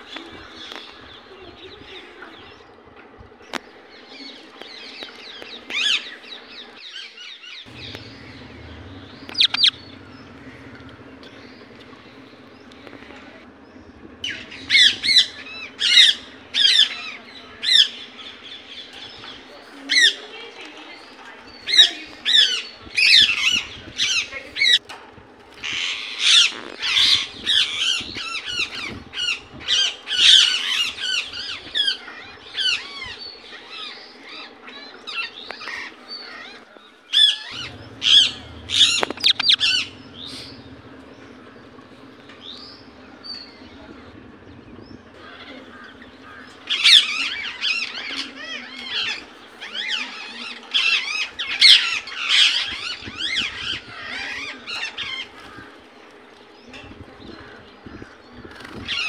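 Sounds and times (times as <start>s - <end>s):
parakeet calling: 7.7s - 18.8s, 37.3s - 55.2s.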